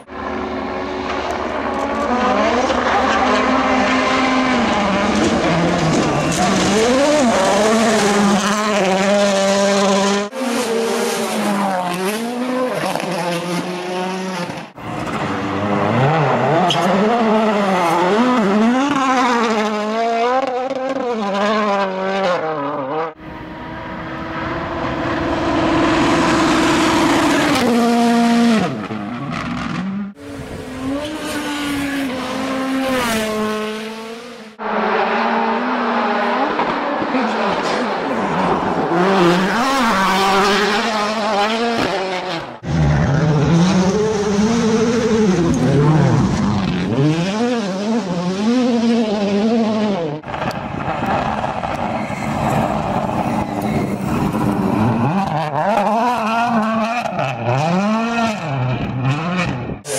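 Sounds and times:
rally car engines revving hard: 0.0 - 59.9.

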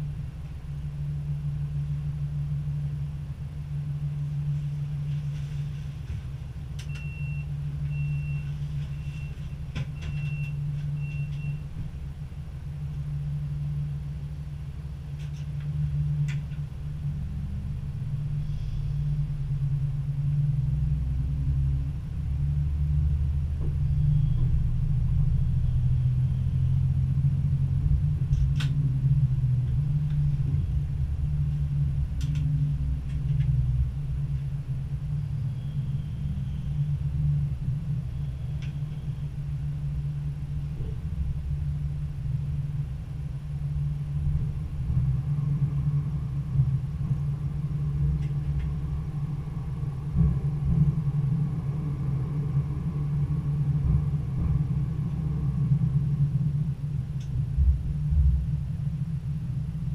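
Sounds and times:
train engine running: 0.0 - 59.9
short high beeps: 6.9 - 9.4.

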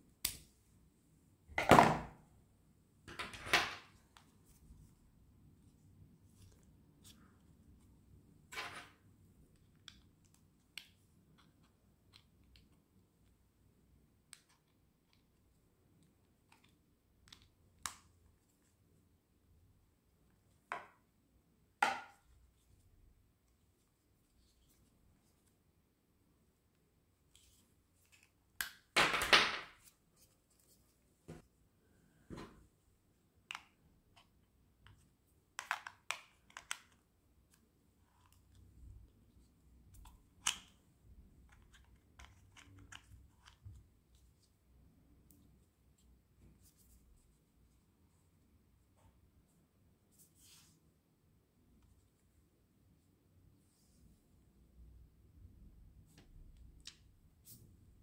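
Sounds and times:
soft rustle: 29.9 - 31.6, 49.0 - 50.9.

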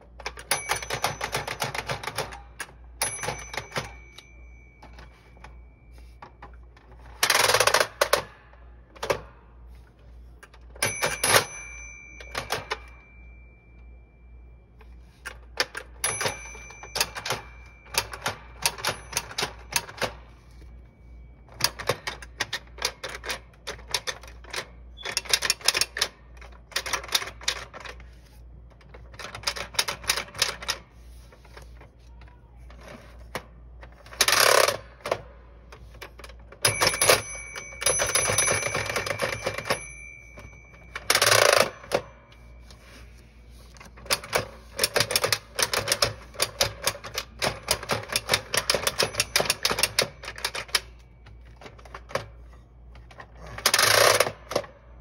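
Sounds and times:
toy typewriter keys clacking: 0.0 - 8.3, 10.4 - 13.0, 15.2 - 20.6, 21.4 - 28.1, 28.7 - 30.8, 35.8 - 42.2, 43.7 - 54.7
mechanical whirring of toy drum: 53.0 - 54.7.

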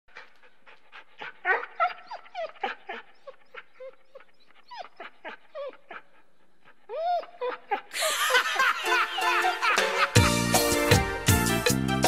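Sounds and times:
dog whining and yipping: 1.2 - 6.0, 6.9 - 7.8.

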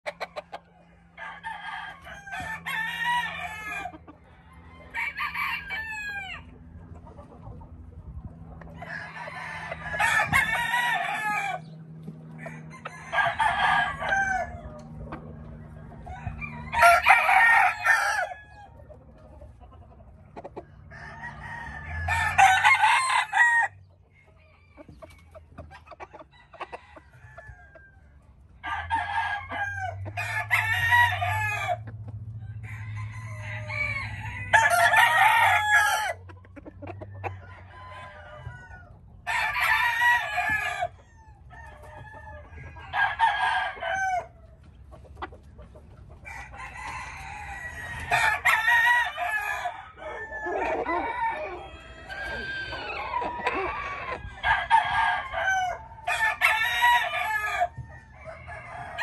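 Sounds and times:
roosters crowing: 0.0 - 59.0.

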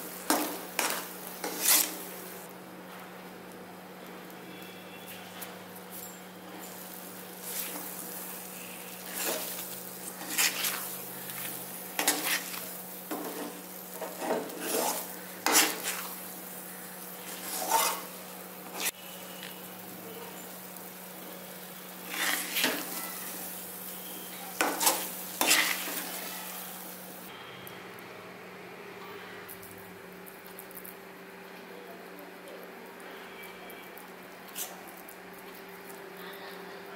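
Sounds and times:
ladle scraping metal pan: 0.3 - 2.1, 9.0 - 11.0, 12.0 - 16.1, 17.3 - 19.0, 22.1 - 23.0, 24.6 - 26.3.

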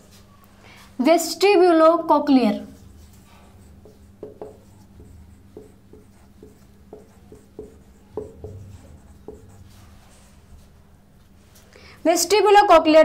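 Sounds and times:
marker writing on whiteboard: 2.7 - 10.8.

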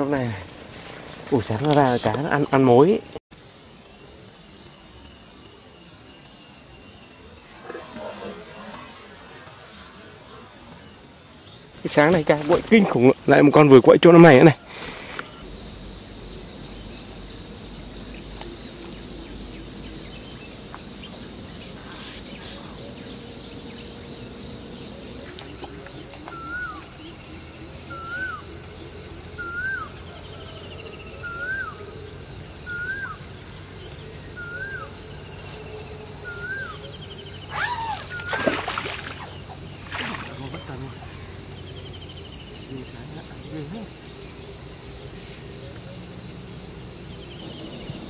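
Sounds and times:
high-pitched insect buzzing: 3.5 - 12.1, 26.3 - 42.2.

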